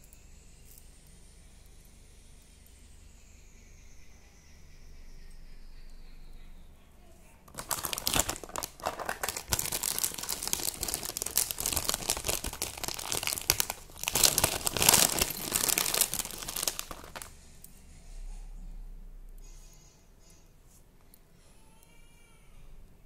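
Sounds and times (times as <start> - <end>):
plastic packaging crinkling: 7.5 - 17.3.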